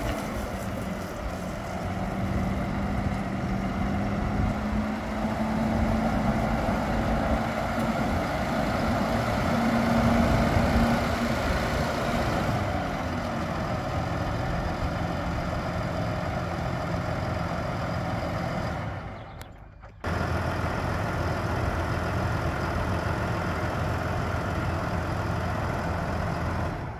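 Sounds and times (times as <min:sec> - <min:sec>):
tractor diesel engine running: 0:00.0 - 0:26.9.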